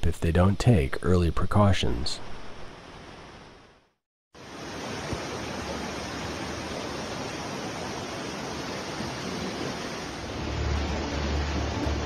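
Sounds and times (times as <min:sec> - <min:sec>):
floodwater rushing: 0:04.4 - 0:12.0.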